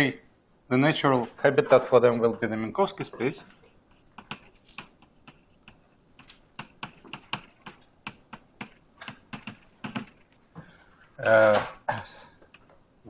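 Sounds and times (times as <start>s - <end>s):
chalk tapping on blackboard: 3.2s - 10.4s.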